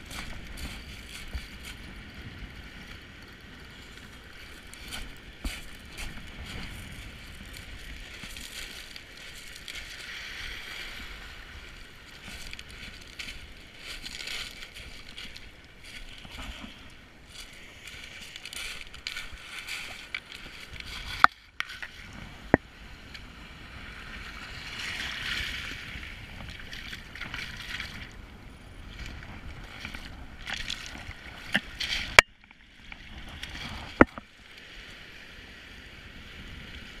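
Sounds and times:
water sloshing over shingle: 12.0 - 22.1, 24.8 - 28.2, 29.0 - 34.2.

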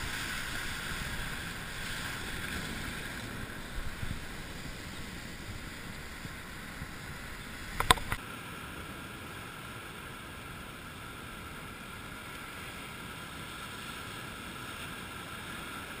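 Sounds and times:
surf against rocks: 0.0 - 16.0
wind: 0.0 - 16.0
sharp clicks: 7.7 - 8.2.

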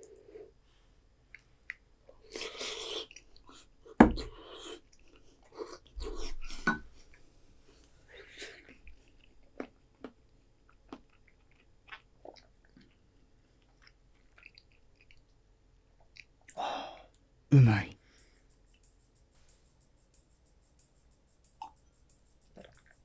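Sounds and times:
mouth clicks of chewing: 22.5 - 23.0.

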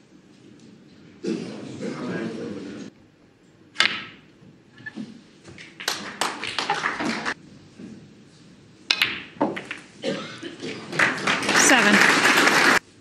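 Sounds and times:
snooker balls clicking: 3.7 - 7.4, 8.8 - 10.0.

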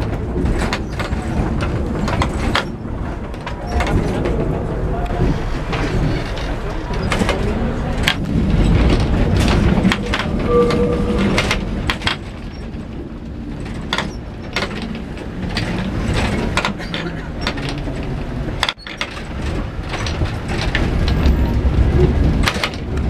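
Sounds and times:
sharp clicks and knocks: 0.0 - 23.0
tram rumbling on rails: 0.0 - 23.0
short high tone: 10.3 - 11.8.

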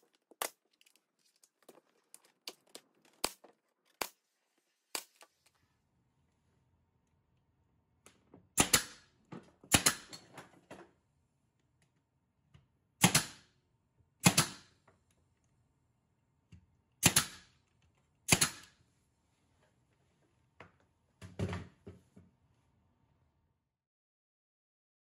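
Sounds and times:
pneumatic nailer firing: 8.6 - 9.1, 9.7 - 10.2, 13.0 - 13.5, 14.2 - 14.7, 17.0 - 17.5, 18.3 - 18.8.

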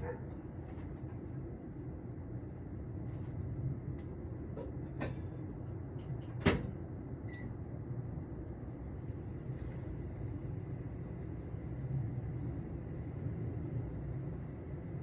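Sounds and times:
distant dog barking: 0.0 - 0.4
low outdoor rumble: 0.0 - 15.0.

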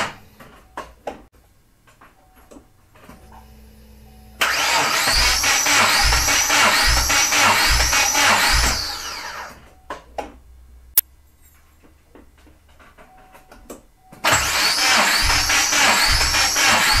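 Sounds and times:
engine cranking on starter motor: 4.4 - 9.6, 14.2 - 17.0.

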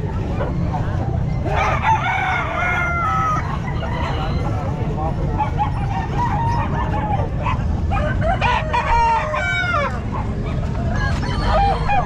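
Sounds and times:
rooster crowing: 1.5 - 3.6, 7.9 - 10.1, 11.0 - 12.0.

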